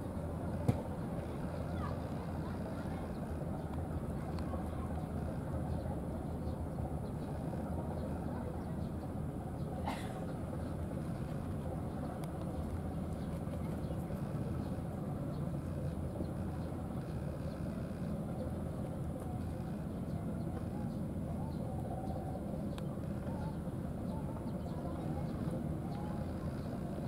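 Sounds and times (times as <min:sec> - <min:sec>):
low outdoor rumble: 0:00.0 - 0:27.0.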